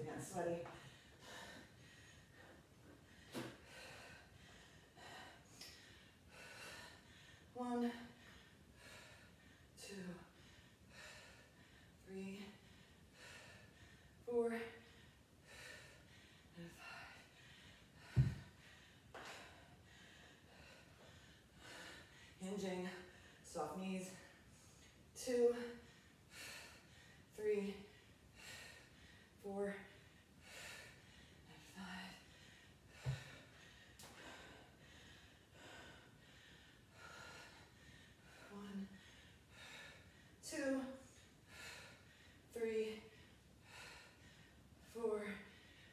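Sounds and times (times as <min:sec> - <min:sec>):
person breathing: 0:00.7 - 0:14.2, 0:14.8 - 0:23.5, 0:24.1 - 0:40.4
kettlebell thud on rubber floor: 0:18.2 - 0:18.4.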